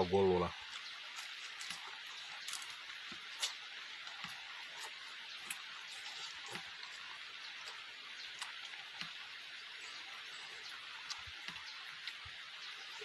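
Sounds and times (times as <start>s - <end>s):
steady background hiss: 0.0s - 13.0s
mouth clicks and smacks of chewing: 0.6s - 9.2s, 10.6s - 12.3s.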